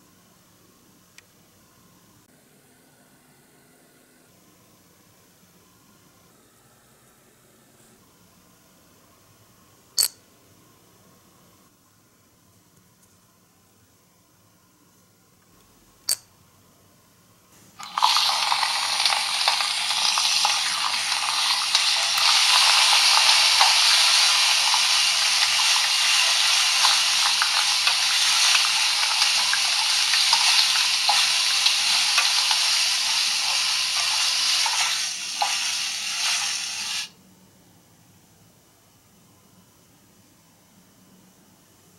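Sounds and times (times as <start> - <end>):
toy speakers playing frying sizzle: 17.6 - 37.2.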